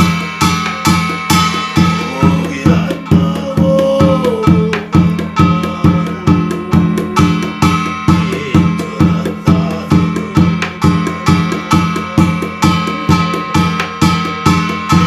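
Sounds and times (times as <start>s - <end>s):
barrel drum beaten with stick: 0.0s - 15.0s
man chanting: 1.7s - 15.0s
brass gongs ringing: 4.9s - 15.0s.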